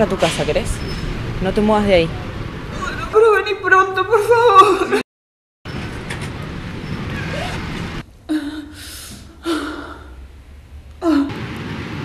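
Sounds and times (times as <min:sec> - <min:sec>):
hissing breath: 0:08.3 - 0:10.2
person gasping: 0:08.3 - 0:10.2.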